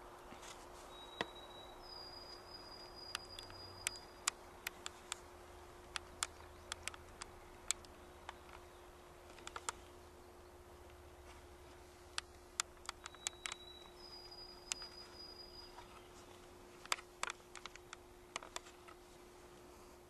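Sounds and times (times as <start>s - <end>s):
thin held whistle: 0.9s - 4.2s, 13.0s - 15.9s
sharp clicks: 2.2s - 10.0s, 12.1s - 15.9s, 16.8s - 19.0s.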